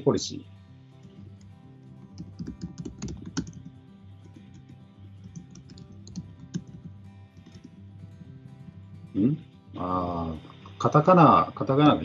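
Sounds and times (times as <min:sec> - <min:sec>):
soft background music: 0:00.0 - 0:12.0
typing on a computer keyboard: 0:01.0 - 0:07.8.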